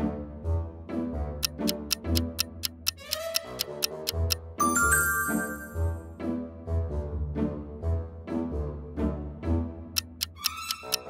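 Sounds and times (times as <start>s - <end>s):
light background music: 0.0s - 11.0s
countdown timer ticking: 1.4s - 6.0s, 10.0s - 11.0s.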